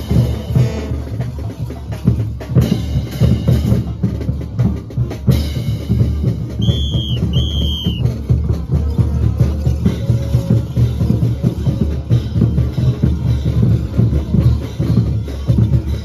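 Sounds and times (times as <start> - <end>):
bass drums beating: 0.0 - 16.0
short high whistle notes: 6.6 - 8.1.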